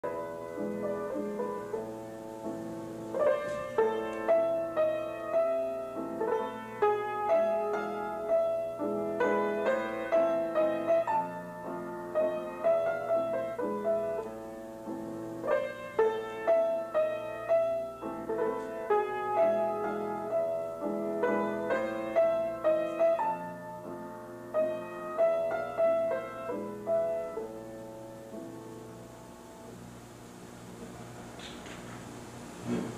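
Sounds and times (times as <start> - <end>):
solo piano playing: 0.0 - 31.3
faint steady hum: 0.0 - 32.9.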